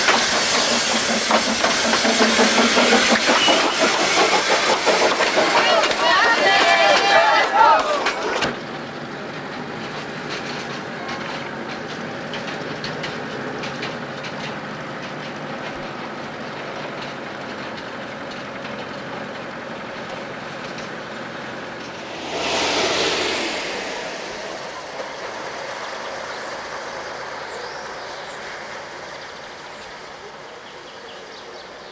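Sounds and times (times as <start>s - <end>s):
train running noise: 0.0s - 31.9s
clicking from rails: 9.5s - 28.5s
loud rushing noise: 21.6s - 27.6s.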